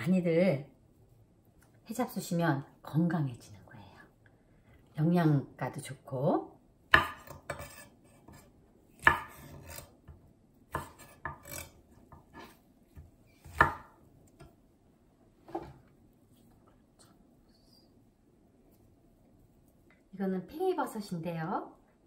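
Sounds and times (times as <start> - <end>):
knife chopping on wooden board: 6.9 - 14.0.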